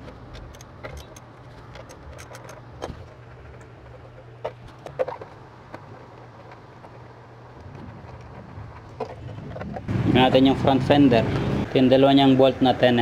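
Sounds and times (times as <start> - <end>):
steady low hum: 0.0 - 12.7
socket wrench clicking on bolts: 0.3 - 2.7.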